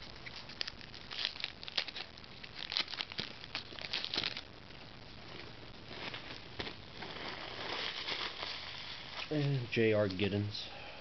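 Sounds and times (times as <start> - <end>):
foil wrappers crinkling: 0.0 - 10.4.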